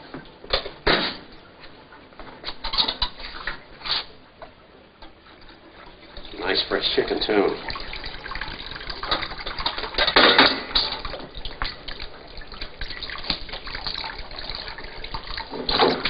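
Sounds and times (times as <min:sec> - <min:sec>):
water trickling and dripping: 0:05.0 - 0:16.0
water splashing into a bowl: 0:06.1 - 0:16.0.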